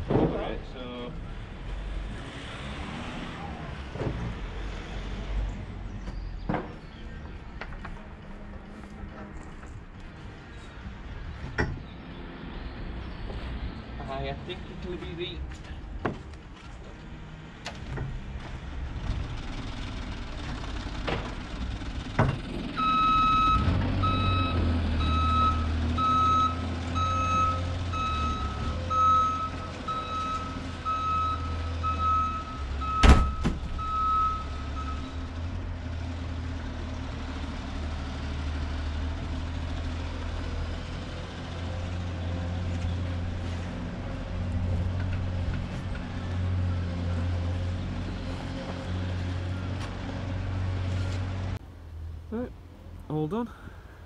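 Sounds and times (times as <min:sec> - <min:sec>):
engine rumble: 0:00.0 - 0:54.0
reversing beeper: 0:22.8 - 0:35.2.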